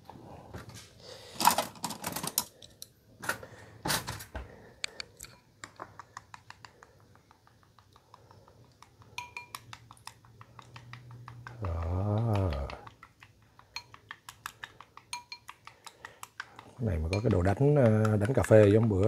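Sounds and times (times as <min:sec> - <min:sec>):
chopsticks beating eggs in bowl: 0:05.7 - 0:19.0.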